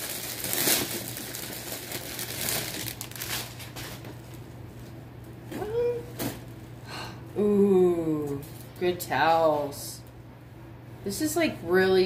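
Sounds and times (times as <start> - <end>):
plastic bag crinkling: 0.0 - 4.4.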